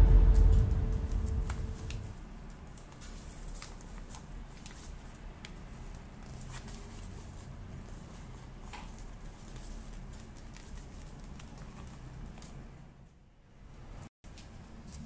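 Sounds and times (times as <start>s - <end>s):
music: 0.0s - 2.2s.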